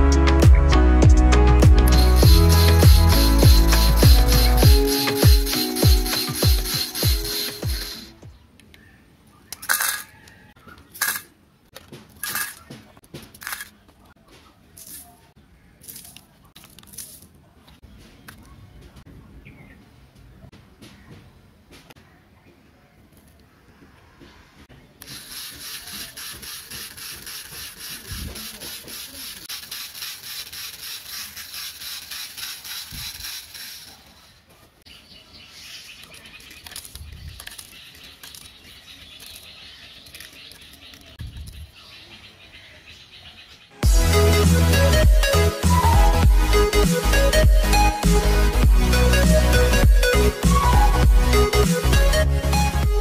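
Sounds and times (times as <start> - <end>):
gear motor rattling mixer drum: 1.8 - 8.2, 25.0 - 34.0.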